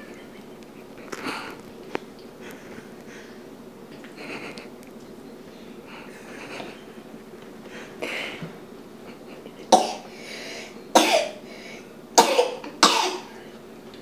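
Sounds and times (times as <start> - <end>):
person coughing: 9.6 - 10.1, 10.9 - 11.4, 12.2 - 13.4.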